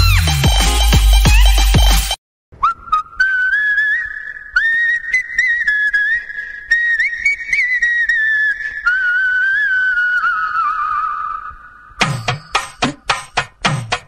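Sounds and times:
whistled melody: 2.6 - 11.2.

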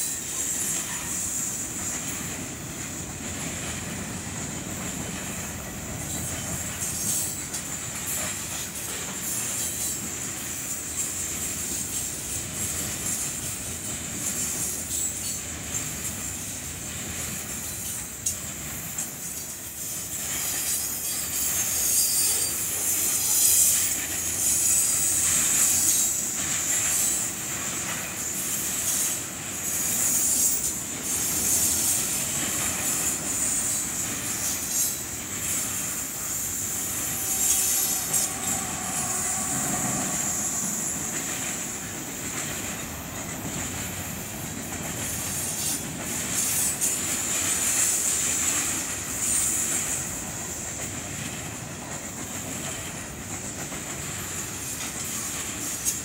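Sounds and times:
freight train wheels on rails: 0.0 - 56.0
wheels squealing: 32.8 - 41.9.

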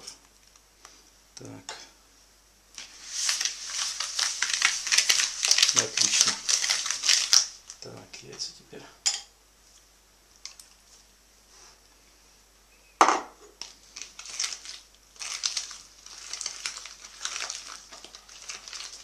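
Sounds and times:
scraping and crackling in bowl: 2.7 - 8.5, 10.4 - 11.1, 13.5 - 19.0.

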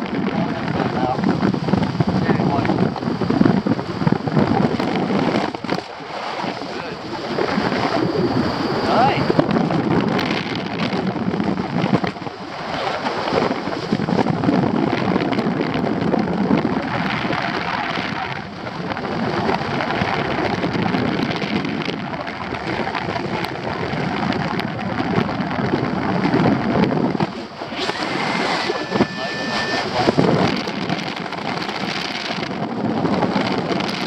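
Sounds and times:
wind rushing over microphone: 0.0 - 34.0.

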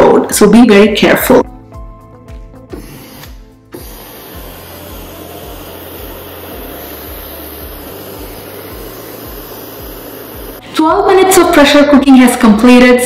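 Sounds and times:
pressure cooker venting steam: 3.7 - 10.6.

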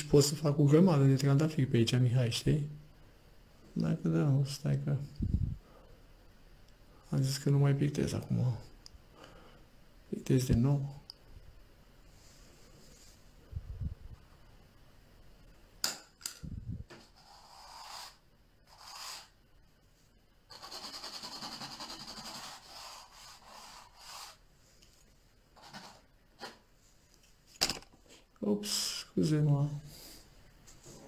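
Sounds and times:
palette knife scraping paint: 17.0 - 19.4, 20.5 - 24.4.

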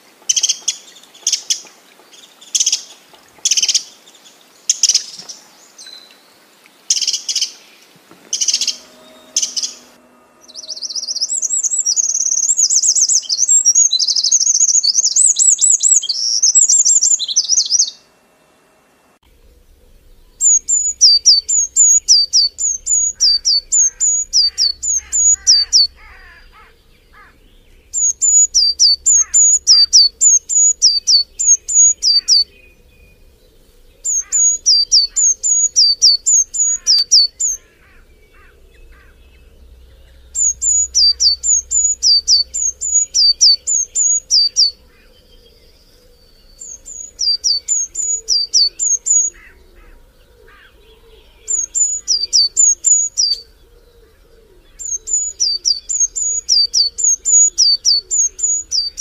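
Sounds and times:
high twittering bird warble: 0.0 - 18.1, 19.3 - 59.0
bird whistling high notes: 8.4 - 17.9.

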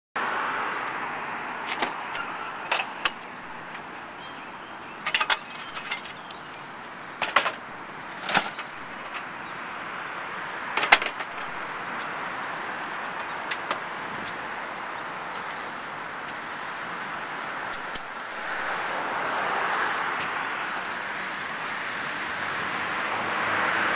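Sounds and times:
street noise hiss: 0.2 - 23.9
rolling cart being handled: 1.7 - 3.9, 5.0 - 6.2, 7.2 - 9.3, 10.7 - 12.0.

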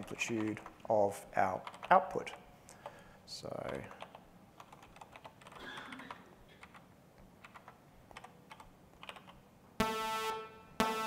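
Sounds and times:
keyboard typing clicks: 1.6 - 2.0, 3.6 - 6.8, 7.4 - 9.4
pulsing synthesizer tone: 9.8 - 11.0.

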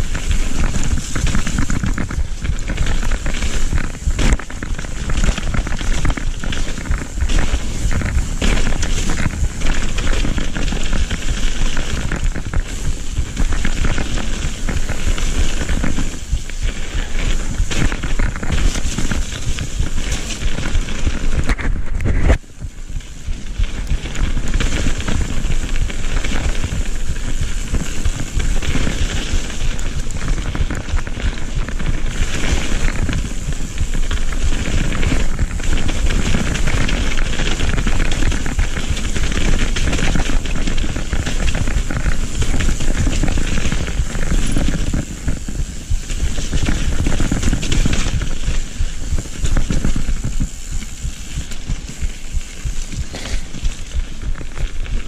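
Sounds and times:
bike tyres rattling over dirt: 0.0 - 55.0
bike thump: 40.7 - 55.0.

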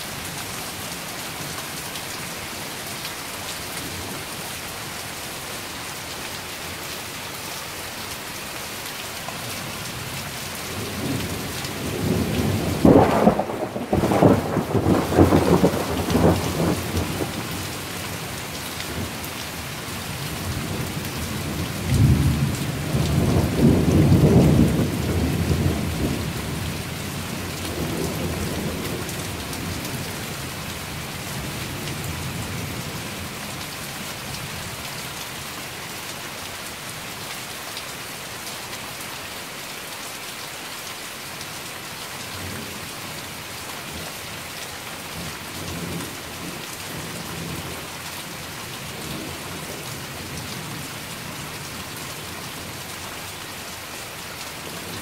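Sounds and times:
steady rain falling: 0.0 - 55.0
thunder rumbling: 11.8 - 17.4.

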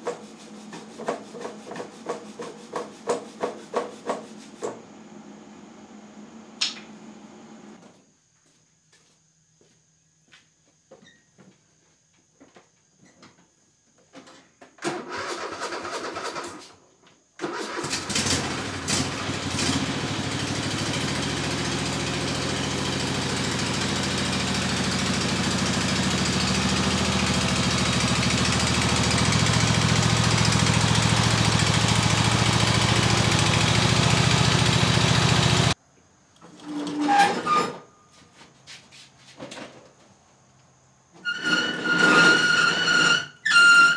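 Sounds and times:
engine starter cranking: 14.8 - 16.8, 17.4 - 35.8
lawn tractor engine running: 14.9 - 16.5, 17.4 - 35.8.

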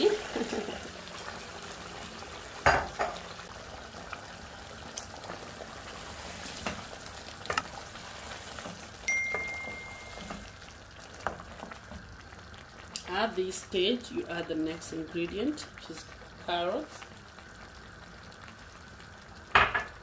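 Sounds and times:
stew sizzling and simmering: 0.0 - 20.0
steady high beep: 9.1 - 10.4.

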